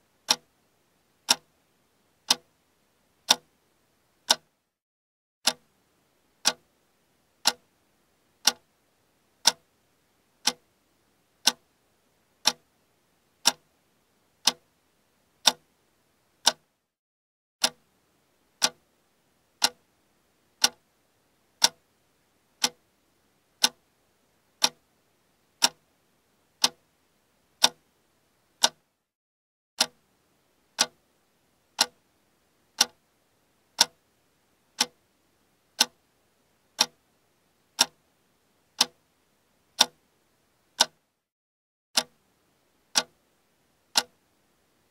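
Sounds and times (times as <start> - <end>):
clock ticking: 0.3 - 0.5, 1.3 - 1.6, 2.3 - 2.5, 3.3 - 3.5, 4.3 - 4.6, 5.4 - 5.7, 6.4 - 6.7, 7.4 - 7.7, 8.4 - 8.7, 9.4 - 9.7, 10.4 - 10.7, 11.4 - 11.7, 12.4 - 12.7, 13.4 - 13.7, 14.4 - 14.6, 15.4 - 15.7, 16.4 - 16.7, 17.6 - 17.9, 18.6 - 18.8, 19.6 - 19.8, 20.6 - 20.8, 21.6 - 21.8, 22.6 - 22.8, 23.6 - 23.8, 24.6 - 24.8, 25.6 - 25.8, 26.6 - 26.8, 27.6 - 27.8, 28.6 - 28.9, 29.8 - 30.0, 30.8 - 31.0, 31.8 - 32.0, 32.8 - 33.0, 33.8 - 34.0, 34.8 - 35.0, 35.8 - 36.0, 36.8 - 37.0, 37.8 - 38.0, 38.8 - 39.0, 39.8 - 40.0, 40.8 - 41.0, 42.0 - 42.2, 42.9 - 43.2, 43.9 - 44.2.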